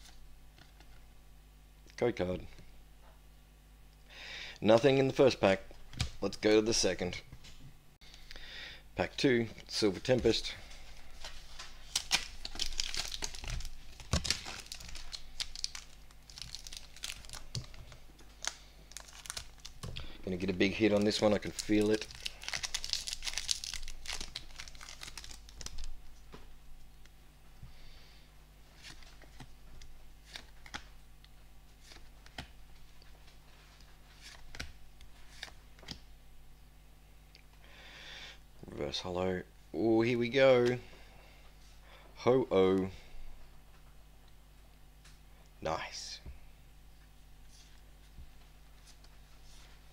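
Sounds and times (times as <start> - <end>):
packaging crinkling and tearing: 11.2 - 20.0, 20.8 - 26.0.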